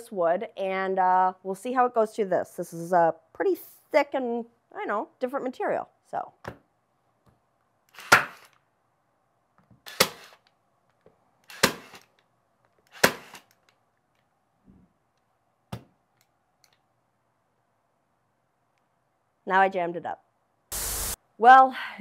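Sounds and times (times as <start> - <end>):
stapler firing staples: 11.5 - 12.0, 12.9 - 13.5.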